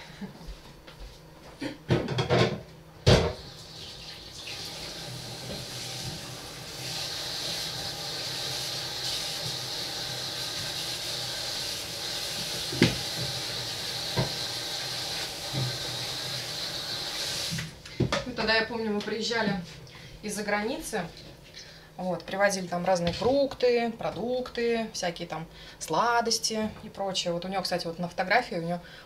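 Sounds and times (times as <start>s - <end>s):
kitchenware clattering: 1.9s - 3.4s
tap running into sink: 12.4s - 15.9s.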